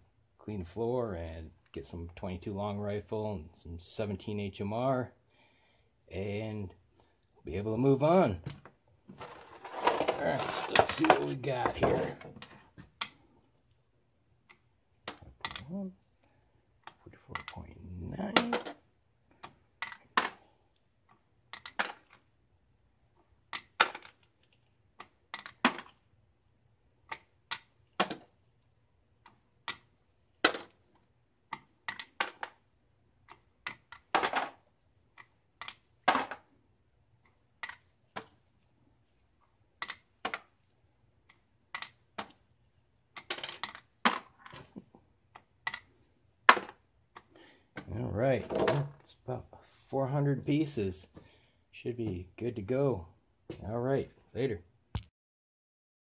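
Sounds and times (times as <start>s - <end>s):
bullet cores tossed into plastic tubs: 9.1s - 12.6s, 33.9s - 34.7s, 36.0s - 36.5s, 43.2s - 44.8s.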